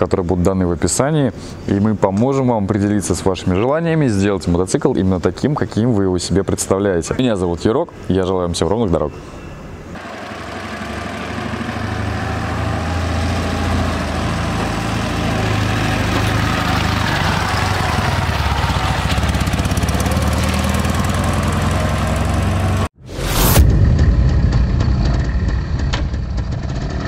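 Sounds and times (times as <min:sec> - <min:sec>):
motorcycle engine running: 0:13.9 - 0:22.9, 0:23.9 - 0:27.0
brief rushing sound: 0:23.0 - 0:27.0.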